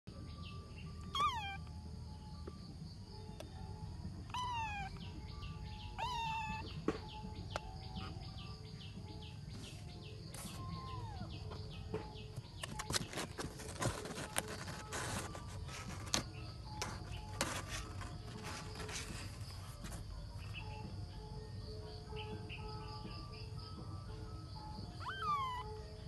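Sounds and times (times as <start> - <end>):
kitten meowing: 1.0 - 1.7, 4.3 - 5.1, 6.0 - 6.8, 10.4 - 11.3, 25.0 - 25.9
clicks and scratches: 12.4 - 20.0.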